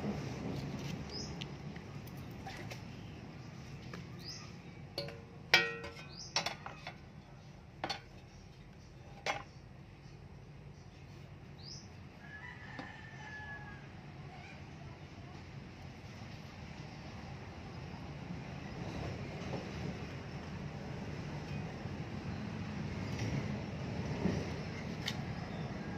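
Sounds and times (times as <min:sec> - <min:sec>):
shovel clanking on concrete: 0:05.0 - 0:07.0.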